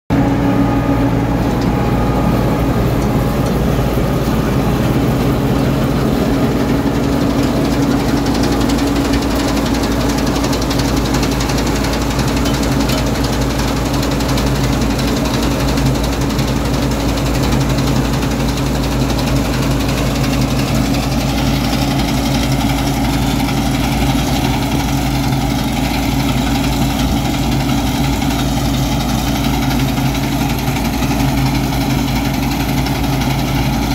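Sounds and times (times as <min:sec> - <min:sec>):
machinery noise: 0:00.1 - 0:16.0
combine harvester engine running: 0:00.1 - 0:33.9.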